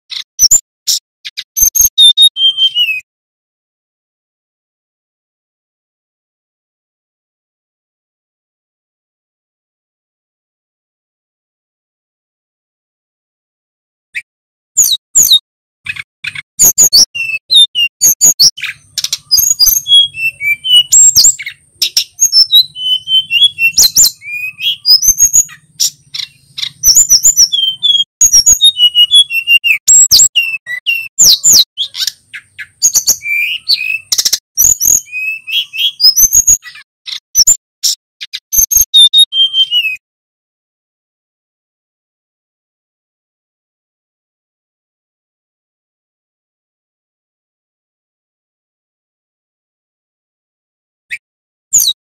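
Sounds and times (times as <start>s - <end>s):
flycatcher singing: 1.3s - 3.0s, 16.6s - 40.0s.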